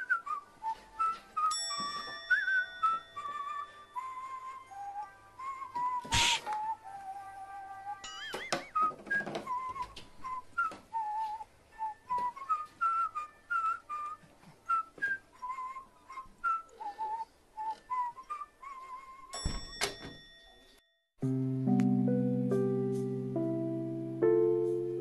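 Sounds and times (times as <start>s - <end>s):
whistled tune: 0.0s - 19.4s
piano and guitar music: 21.2s - 25.0s.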